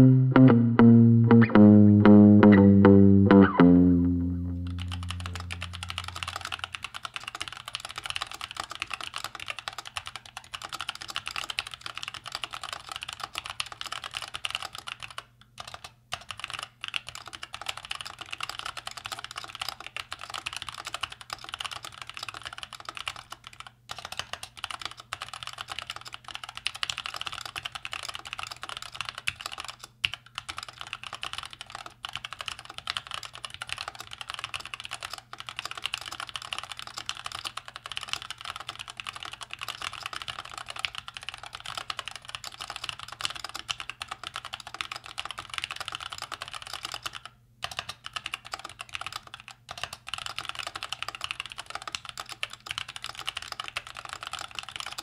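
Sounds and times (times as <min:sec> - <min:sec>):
mechanical keyboard typing: 0:04.7 - 0:55.0.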